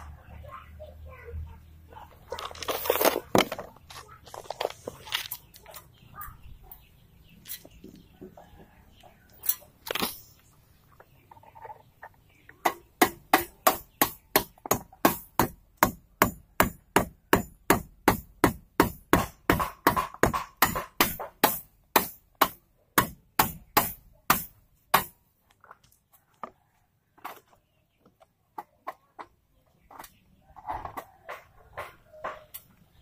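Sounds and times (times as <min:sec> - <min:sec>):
rapid hammering on masonry: 0:12.6 - 0:25.2.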